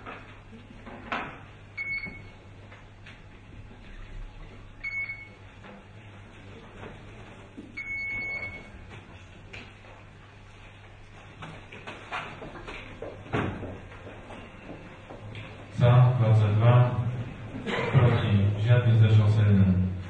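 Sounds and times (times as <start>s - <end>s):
low room hum: 0.0s - 20.0s
electronic beeps: 7.8s - 8.7s.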